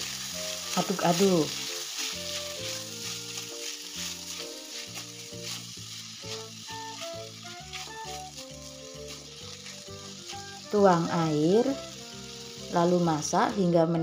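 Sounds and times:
vegetables sizzling in oil: 0:00.0 - 0:14.0
spatula scraping: 0:00.5 - 0:11.0.

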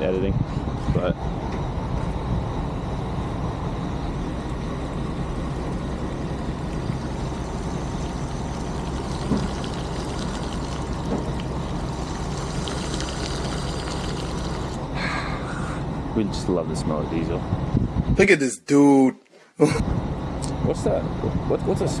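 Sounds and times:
fuel rushing into tank: 0:04.7 - 0:14.9.

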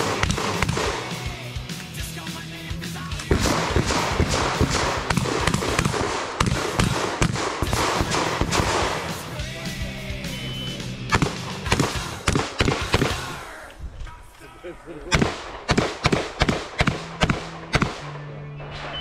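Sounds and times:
shotgun shots: 0:00.0 - 0:01.3, 0:03.2 - 0:09.3, 0:11.1 - 0:13.4, 0:15.1 - 0:19.0
background music: 0:00.0 - 0:13.7.

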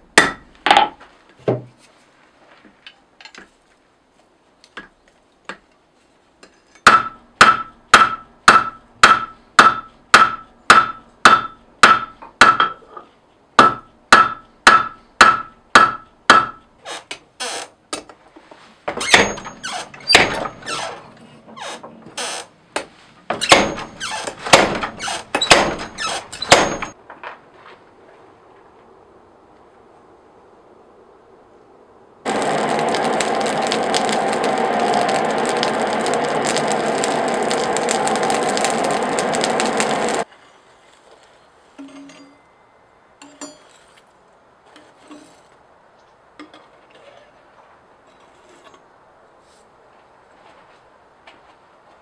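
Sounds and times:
hammer striking blade on anvil: 0:06.8 - 0:12.7, 0:25.5 - 0:27.0.

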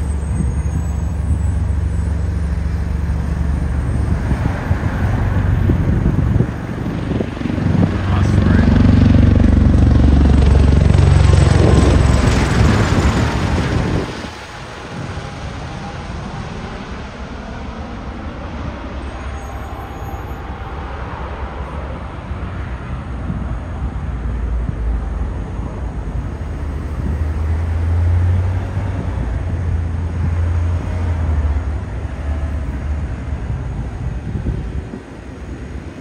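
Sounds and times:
aircraft rotor drone: 0:00.0 - 0:36.0.

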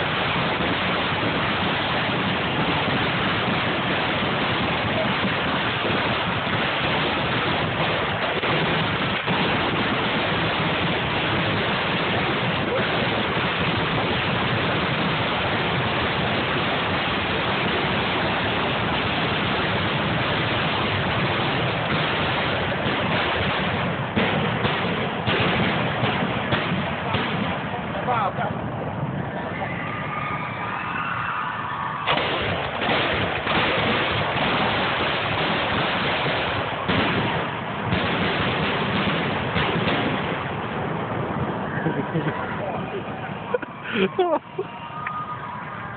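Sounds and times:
fireworks fountains hissing and crackling: 0:00.0 - 0:45.9.

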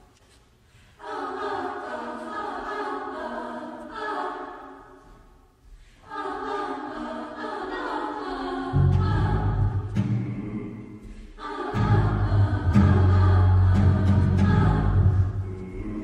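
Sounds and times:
a cappella choir singing: 0:00.8 - 0:16.0.

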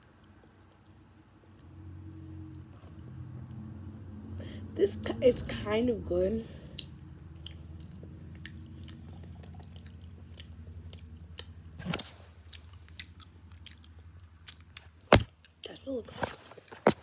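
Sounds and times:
person chewing a snack: 0:00.0 - 0:01.7, 0:06.6 - 0:15.6
steady hum: 0:00.0 - 0:15.3.

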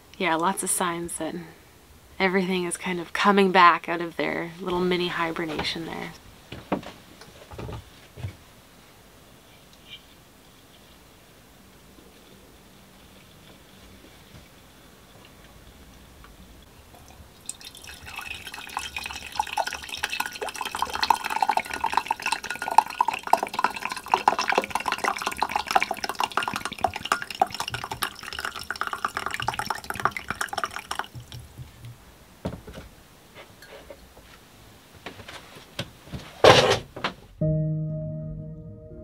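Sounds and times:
coffee pouring into a mug: 0:17.0 - 0:31.4
music notes: 0:37.4 - 0:39.0.

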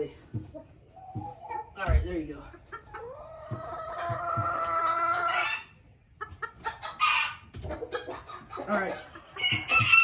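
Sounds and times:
chickens clucking and squawking: 0:00.0 - 0:10.0
rooster crowing: 0:09.4 - 0:10.0.

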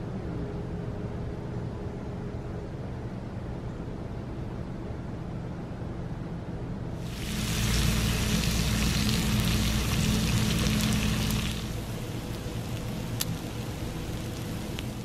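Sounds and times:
bacon sizzling on griddle: 0:07.0 - 0:15.0.

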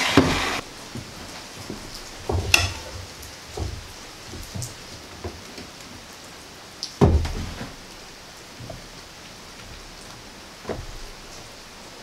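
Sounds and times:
rain pattering: 0:00.0 - 0:12.0
heavy thump on workbench: 0:07.0 - 0:07.7.

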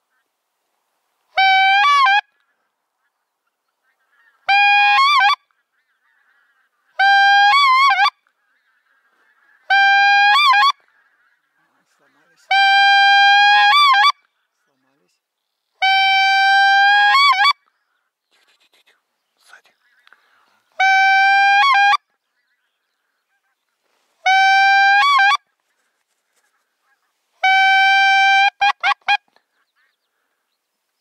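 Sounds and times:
goose call honking: 0:01.3 - 0:14.8, 0:19.8 - 0:30.4.

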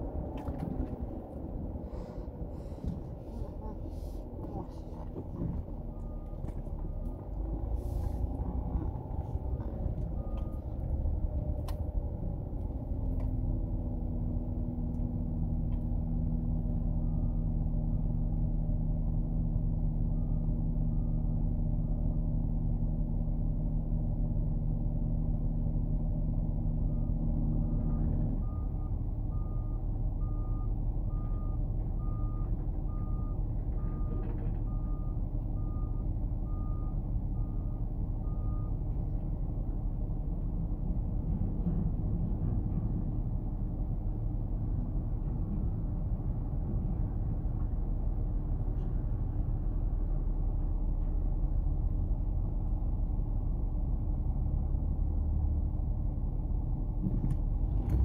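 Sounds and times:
vehicle engine idling: 0:00.0 - 0:58.0
reversing alarm beeping: 0:05.4 - 0:10.8, 0:26.9 - 0:38.8.

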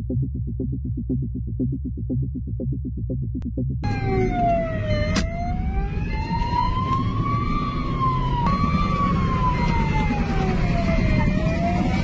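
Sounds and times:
car engine and road rumble: 0:00.0 - 0:12.0
police siren wailing: 0:03.8 - 0:12.0.

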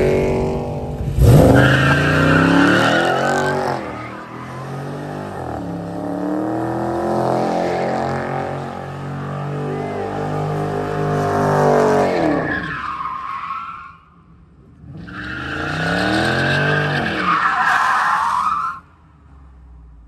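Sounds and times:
car engine revving hard: 0:00.0 - 0:12.4.

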